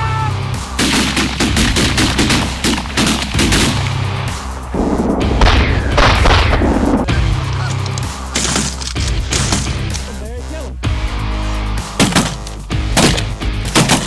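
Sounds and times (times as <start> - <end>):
music with heavy bass line: 3.4 - 8.3
shotgun blasts: 5.4 - 7.0, 13.0 - 14.0.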